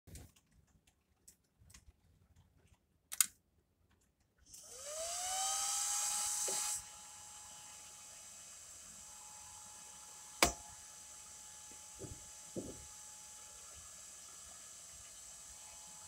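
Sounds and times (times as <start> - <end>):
servo motor whine: 4.5 - 16.0.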